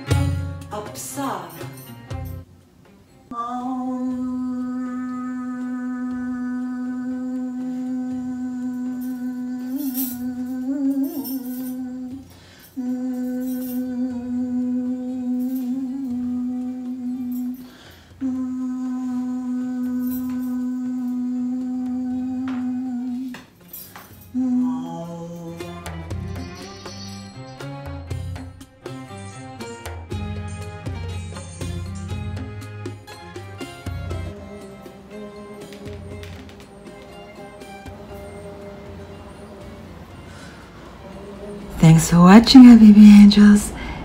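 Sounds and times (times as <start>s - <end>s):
woman humming a chant: 3.3s - 23.5s, 24.3s - 26.0s, 34.3s - 44.0s.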